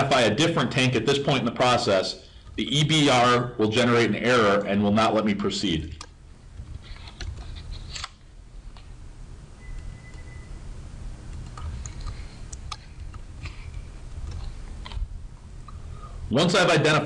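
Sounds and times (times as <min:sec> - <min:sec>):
steady low hum: 0:00.0 - 0:17.0
faint brief tone: 0:09.6 - 0:10.7.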